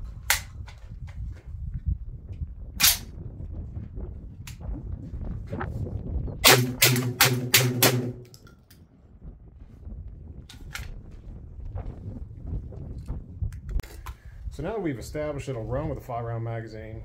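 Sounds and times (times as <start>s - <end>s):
shotgun shots: 6.4s - 8.4s.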